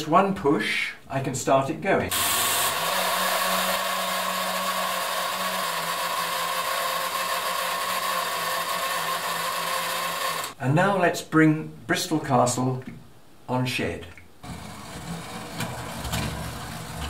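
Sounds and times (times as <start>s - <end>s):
model railway turntable motor whirring: 2.1s - 10.6s, 14.4s - 17.0s.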